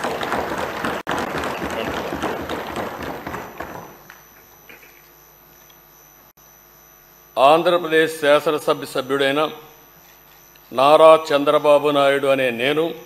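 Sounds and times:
applause: 0.0s - 4.0s.

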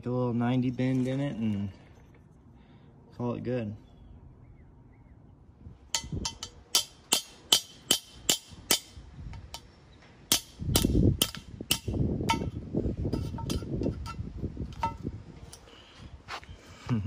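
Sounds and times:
hammer striking steel: 5.9s - 9.7s, 10.3s - 12.6s.

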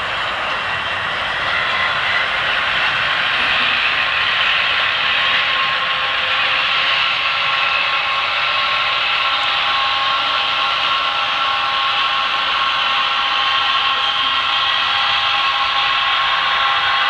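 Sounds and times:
model train whirring: 0.0s - 17.0s
whining tones: 0.0s - 17.0s.

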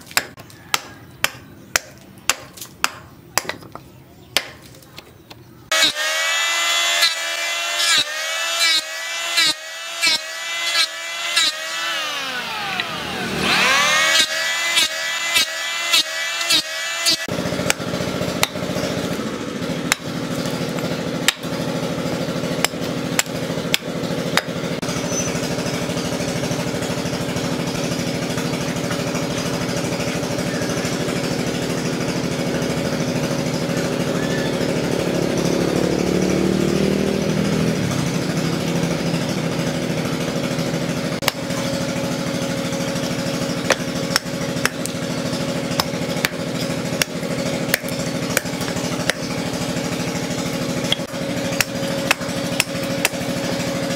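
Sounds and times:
hatchet chopping wood: 0.0s - 4.7s, 6.7s - 24.9s, 40.0s - 53.9s
steady mechanical hum: 0.0s - 36.5s.

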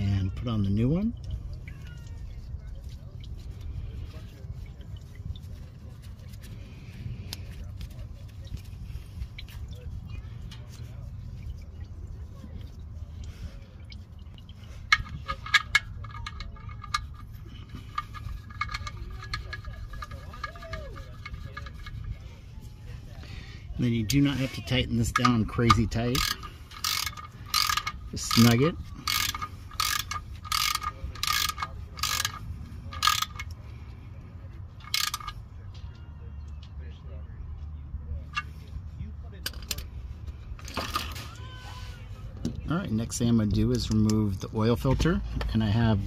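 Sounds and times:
low background rumble: 0.0s - 46.0s
hand ratchet clicking: 14.7s - 22.2s, 25.0s - 33.6s, 34.8s - 35.4s.

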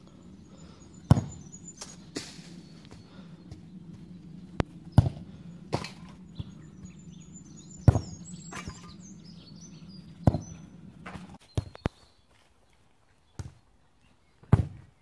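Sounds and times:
steady low hum: 0.0s - 11.4s
birds chirping: 0.0s - 15.0s
boot kicking football: 1.1s - 1.5s, 4.9s - 6.5s, 10.2s - 12.0s, 14.4s - 14.9s.

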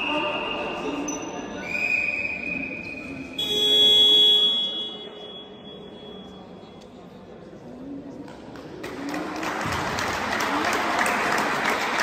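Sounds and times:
referee whistle blast: 1.6s - 6.3s
scoreboard buzzer: 3.4s - 5.5s.

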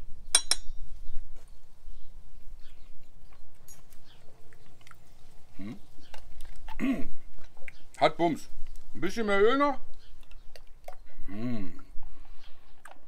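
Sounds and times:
lip-smacking and chewing: 3.2s - 8.0s, 9.8s - 13.0s.

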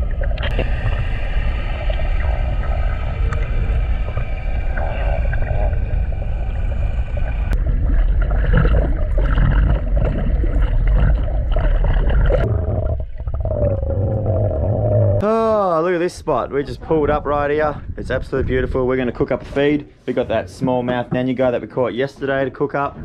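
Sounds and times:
faint steady whining tones: 0.0s - 8.0s
underwater rumble of moving water: 0.0s - 15.2s.

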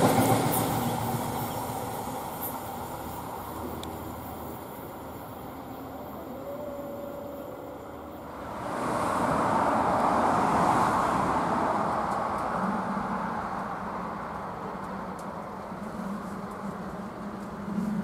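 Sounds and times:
vehicle passing by: 8.0s - 18.0s.

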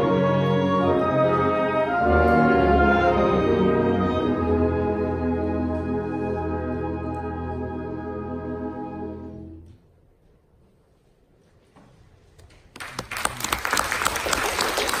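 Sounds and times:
wind ensemble chord: 0.0s - 9.6s
audience applause: 12.7s - 15.0s.

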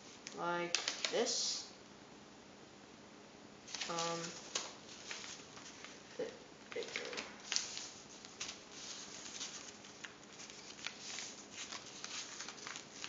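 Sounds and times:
paper rustling and crinkling: 3.7s - 13.0s.

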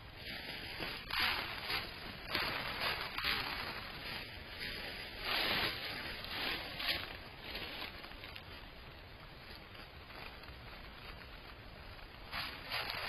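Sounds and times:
dry leaves rustling and crunching: 0.1s - 13.0s.

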